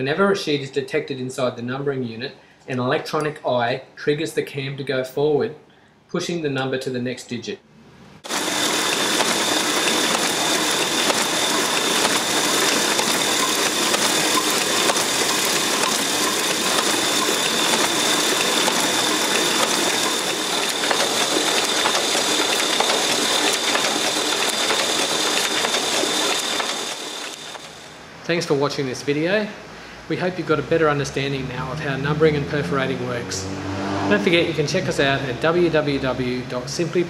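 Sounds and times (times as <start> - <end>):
printing press mechanical clatter: 8.2 - 28.0.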